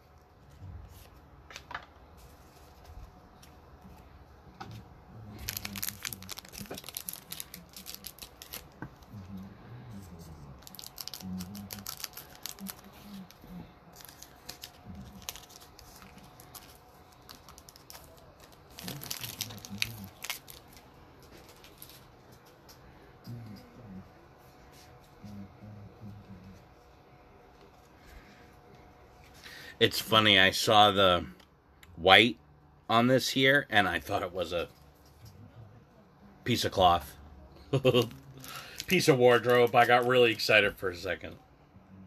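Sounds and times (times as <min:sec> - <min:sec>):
wrappers tearing and crinkling: 0:05.2 - 0:09.1, 0:10.5 - 0:22.1, 0:37.8 - 0:40.4.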